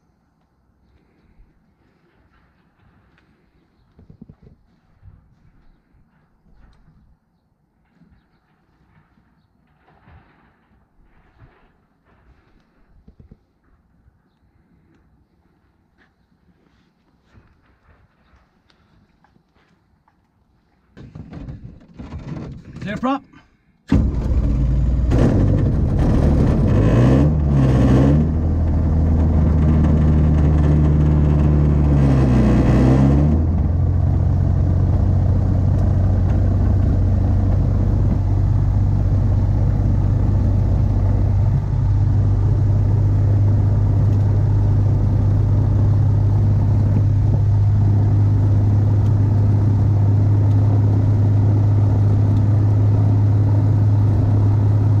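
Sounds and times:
two-stroke engine revving and idling: 23.9 - 55.0.

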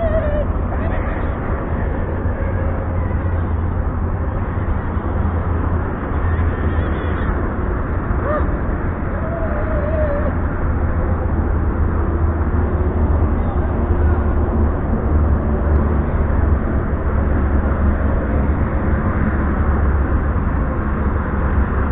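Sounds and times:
distant race car engine: 0.0 - 21.9
wind rumble on microphone: 0.0 - 21.9.

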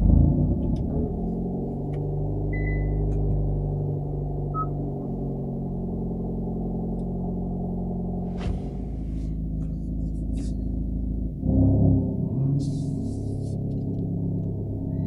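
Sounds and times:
car engine revving then idling: 0.0 - 15.0
short electronic beeps: 2.6 - 3.0, 4.6 - 4.8.

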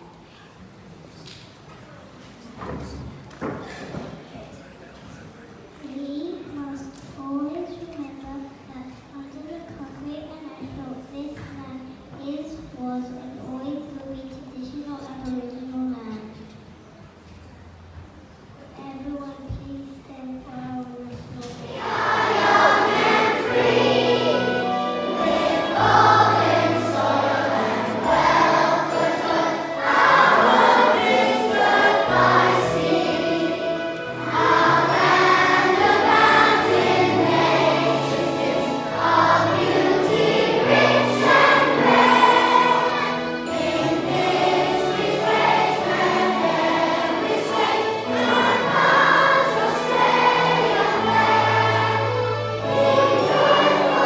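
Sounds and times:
choir singing a hymn: 21.6 - 54.0
instrumental accompaniment: 21.6 - 54.0.

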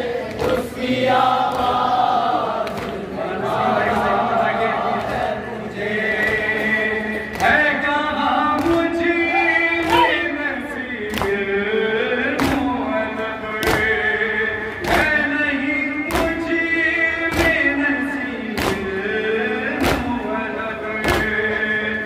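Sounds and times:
men chanting a lament: 0.0 - 22.0.

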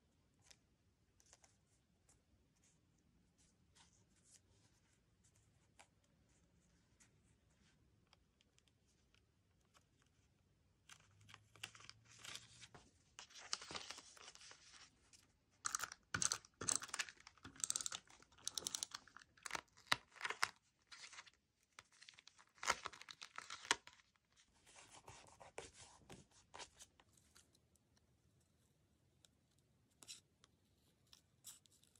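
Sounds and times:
plastic sleeve and paper crinkling: 11.0 - 25.2.

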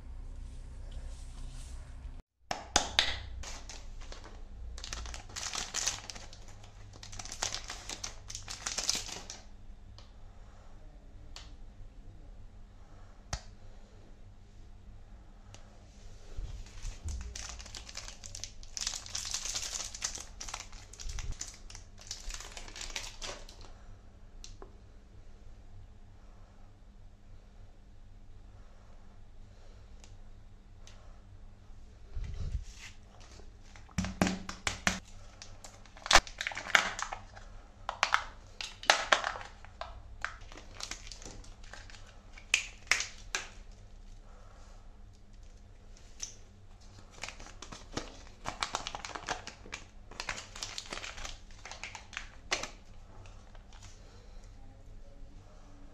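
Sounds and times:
plastic wrapper crinkling: 3.0 - 9.5, 16.6 - 23.7, 32.7 - 44.1, 45.2 - 54.0
plastic shell and foil crackling: 3.4 - 9.5, 16.6 - 23.7, 33.1 - 43.8, 45.3 - 54.0.

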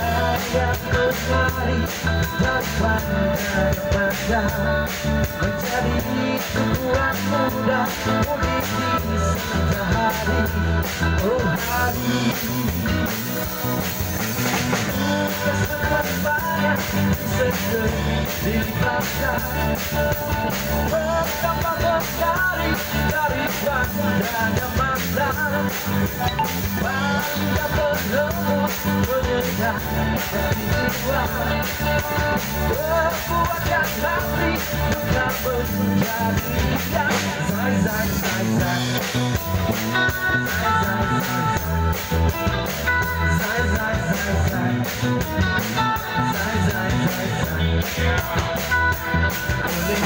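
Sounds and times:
bass guitar: 0.0 - 50.0
drum kit steady beat: 0.0 - 50.0
electric guitars: 0.0 - 50.0
person singing lead: 14.8 - 41.7.

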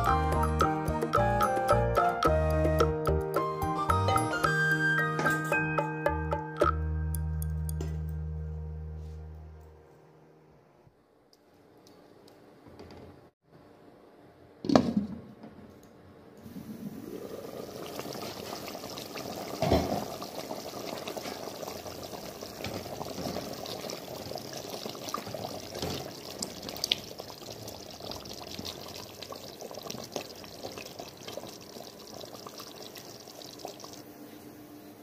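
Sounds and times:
gravy bubbling in pan: 16.6 - 34.0.

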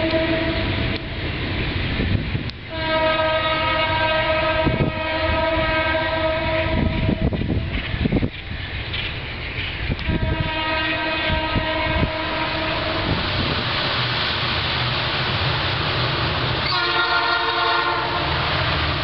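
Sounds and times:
locomotive air horn blasts: 0.0 - 1.0, 2.7 - 7.3, 10.0 - 13.4, 16.6 - 18.8
low rumble of train: 0.0 - 19.0.

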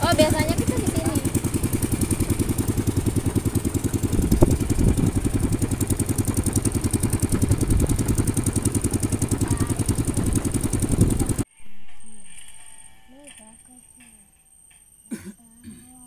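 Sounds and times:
low thumps: 0.0 - 11.4
boat motor running: 0.0 - 11.5.

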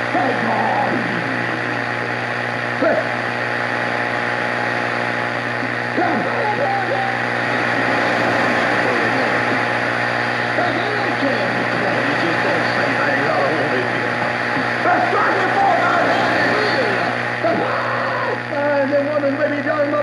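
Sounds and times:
faint voice on radio: 0.0 - 2.2, 5.6 - 19.2
radio static hiss: 0.0 - 20.0
low hum: 0.8 - 17.5.

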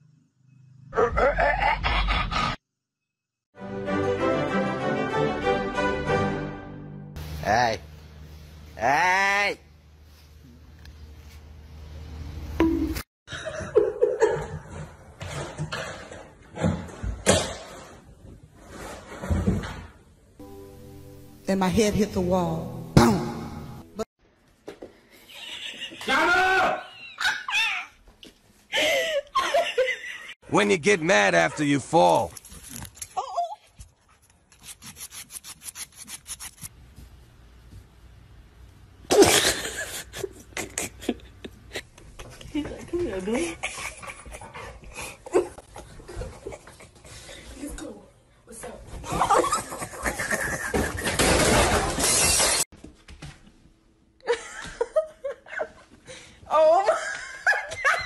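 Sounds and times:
person laughing: 1.0 - 2.6, 25.4 - 27.9, 39.1 - 42.7, 49.1 - 51.4.

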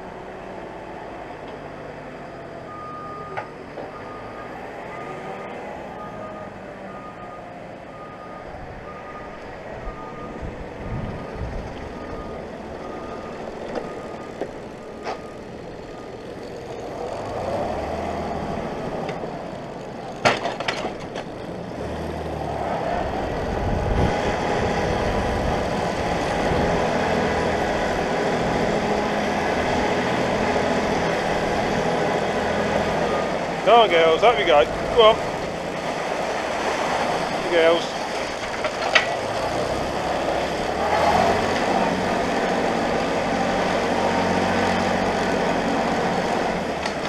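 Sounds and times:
tractor diesel engine running: 0.0 - 47.0
reversing alarm beeping: 2.2 - 10.5, 11.2 - 16.3.

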